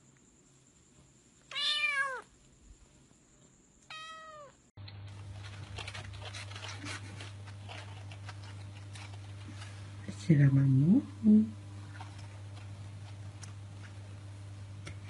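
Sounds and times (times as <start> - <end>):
rustling: 0.0 - 10.1
cat meowing: 1.5 - 2.3, 3.9 - 4.6
steady low hum: 4.6 - 15.0.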